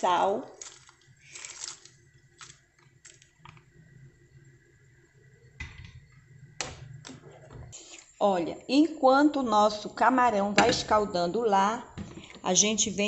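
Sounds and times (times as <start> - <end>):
colander knocking against pot: 10.6 - 11.1.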